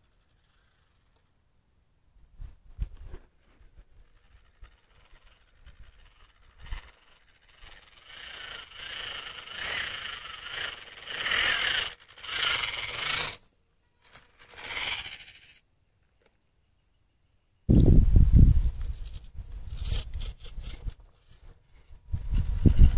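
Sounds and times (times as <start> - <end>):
tyres scraping on soil: 2.8 - 15.6, 18.7 - 22.9
electric motor and gears whining: 3.9 - 13.4, 14.0 - 15.6, 18.7 - 22.9.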